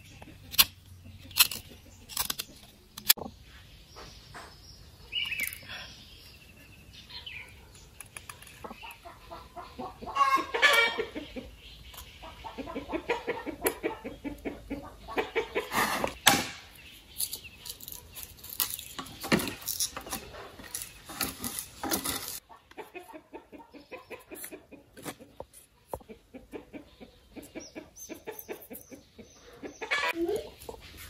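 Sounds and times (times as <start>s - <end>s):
knife shaving bamboo: 0.3s - 3.2s, 17.2s - 22.4s
chickens clucking: 7.4s - 16.2s, 22.0s - 31.0s.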